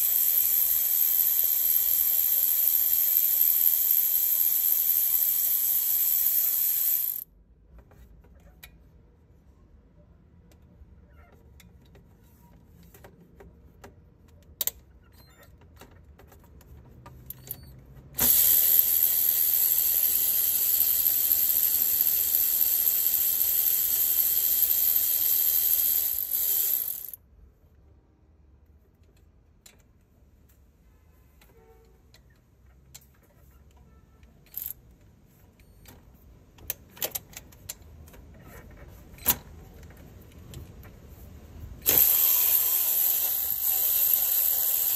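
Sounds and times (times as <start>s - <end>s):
electric ratchet running: 0.0s - 7.2s, 18.2s - 27.2s, 34.5s - 34.8s, 41.8s - 44.9s.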